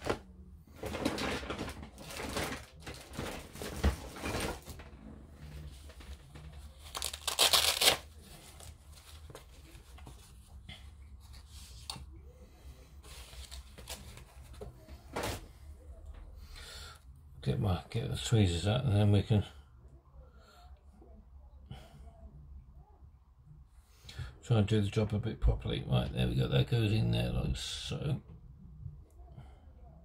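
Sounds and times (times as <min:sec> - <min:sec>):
hands rustling and crinkling: 0:00.0 - 0:12.1.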